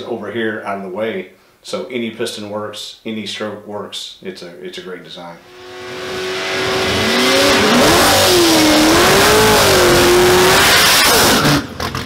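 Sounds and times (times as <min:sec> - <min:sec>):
car engine revving hard: 0:05.4 - 0:12.0.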